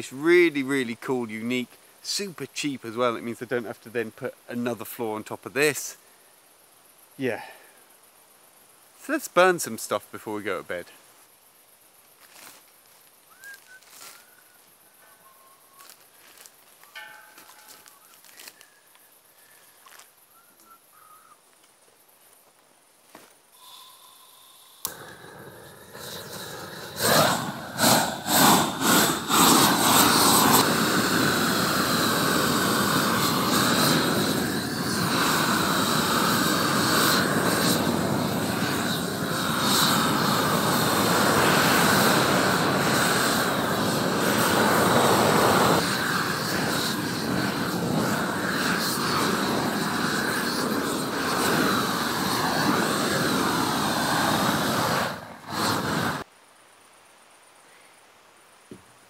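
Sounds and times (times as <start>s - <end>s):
blowtorch flame rushing: 23.6s - 56.3s
blowtorch igniter click: 24.8s - 25.6s.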